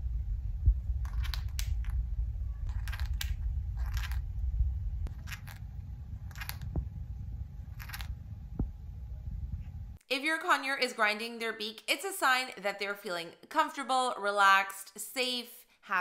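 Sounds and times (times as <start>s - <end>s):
low rumble: 0.0s - 10.0s
parrot grinding its beak: 2.7s - 4.2s, 5.1s - 5.6s.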